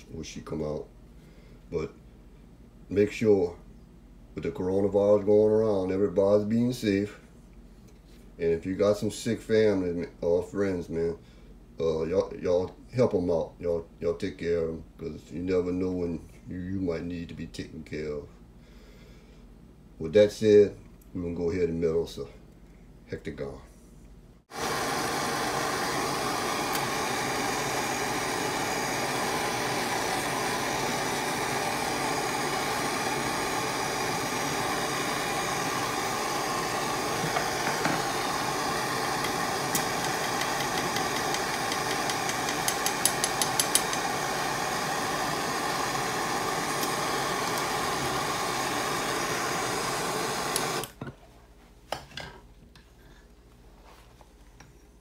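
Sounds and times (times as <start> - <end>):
gas torch flame hissing: 24.4 - 51.0.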